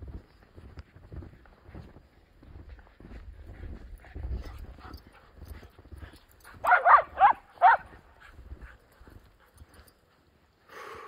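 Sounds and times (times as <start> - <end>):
footsteps crunching in snow: 0.0 - 10.2
dog barking: 6.6 - 8.0.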